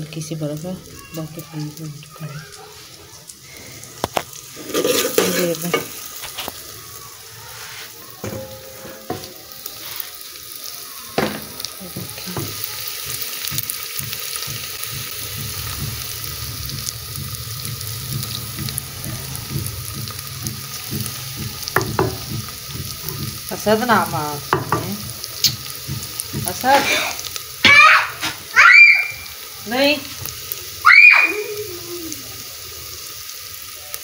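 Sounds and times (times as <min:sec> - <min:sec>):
paste sizzling in hot oil: 0:00.0 - 0:34.0
metal spoon scraping a pot: 0:04.5 - 0:06.5
cookware knocks: 0:08.2 - 0:09.4, 0:11.2 - 0:12.6, 0:21.0 - 0:23.4, 0:24.5 - 0:26.5.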